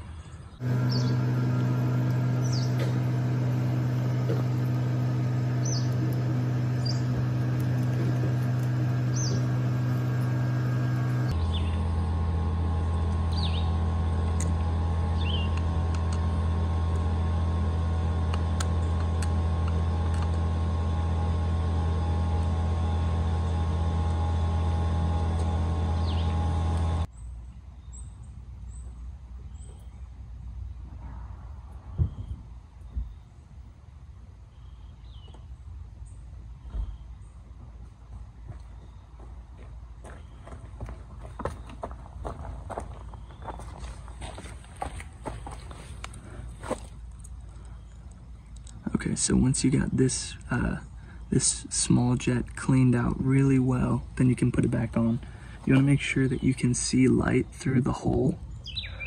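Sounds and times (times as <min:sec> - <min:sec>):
bird chirps: 0:00.0 - 0:01.4, 0:02.3 - 0:03.0, 0:05.5 - 0:07.2, 0:08.5 - 0:09.7, 0:11.4 - 0:11.9, 0:13.3 - 0:13.8, 0:15.2 - 0:15.6, 0:26.0 - 0:26.4, 0:58.5 - 0:59.0
steady low hum: 0:00.0 - 0:59.0
loud motor drone: 0:00.6 - 0:27.1.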